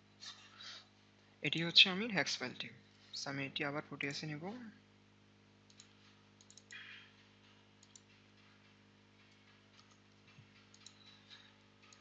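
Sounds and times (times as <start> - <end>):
low electrical hum: 0.0 - 12.0
mouse and keyboard clicks: 5.7 - 6.8, 9.8 - 12.0.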